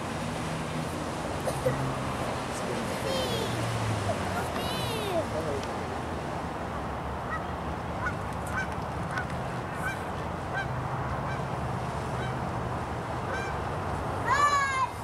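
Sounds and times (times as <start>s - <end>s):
jet ski engine drone: 0.0s - 14.8s
distant bird calls: 7.2s - 11.5s.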